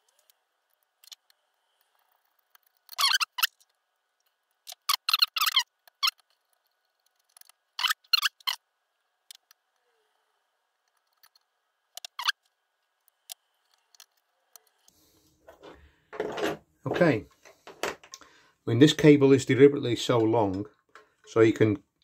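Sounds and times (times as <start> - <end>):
small screws squeaking: 0.0 - 10.2, 10.8 - 14.9.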